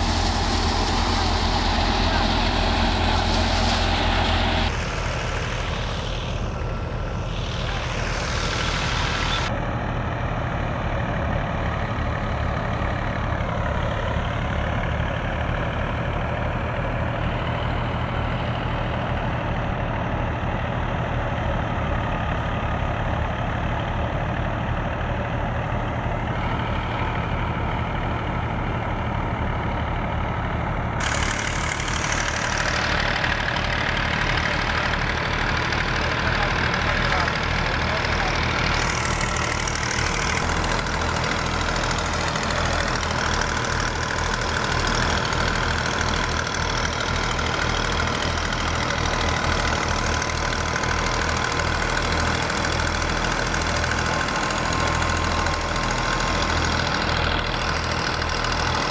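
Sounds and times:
thresher and diesel tractor droning: 0:00.0 - 0:58.9.

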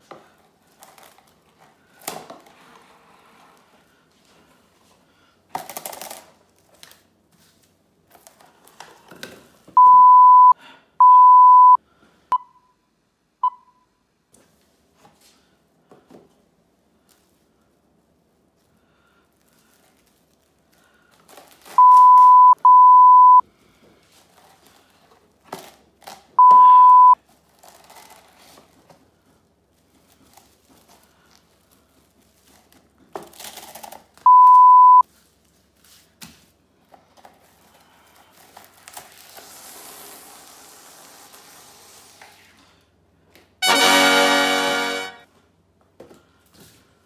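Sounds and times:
cling wrap crinkling and tearing: 0:05.6 - 0:09.1, 0:19.3 - 0:21.8, 0:27.2 - 0:34.2, 0:37.2 - 0:42.2
loud bleep tone: 0:09.8 - 0:11.8, 0:21.8 - 0:23.4, 0:26.4 - 0:27.2, 0:34.3 - 0:35.0, 0:43.6 - 0:45.2.

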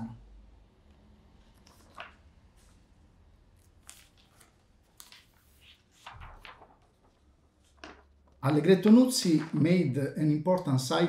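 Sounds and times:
paper sheets rustling: 0:01.5 - 0:03.0, 0:03.6 - 0:09.8.

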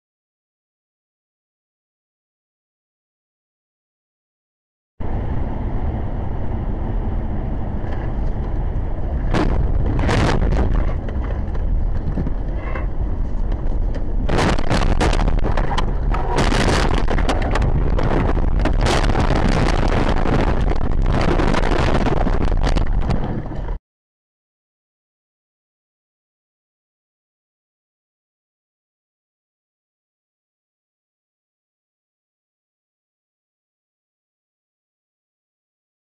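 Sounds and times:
road and wind noise rumble: 0:05.0 - 0:23.8
car crashing and scraping: 0:07.8 - 0:23.7.

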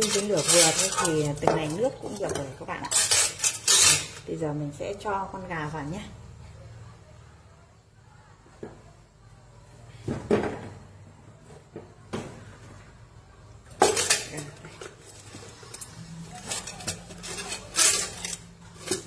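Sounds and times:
steamer basket clattering in a pot: 0:00.0 - 0:04.4, 0:13.7 - 0:19.0.

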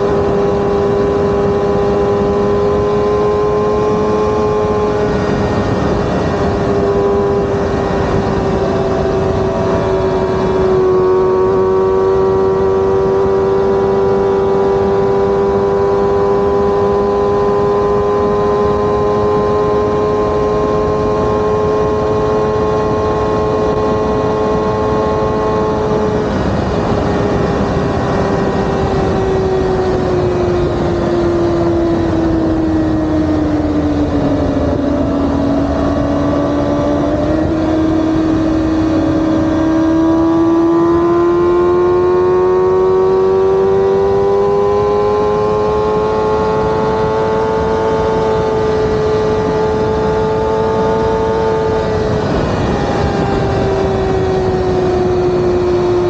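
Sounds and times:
motorcycle engine: 0:00.0 - 0:56.0
wind and road noise: 0:00.0 - 0:56.0.

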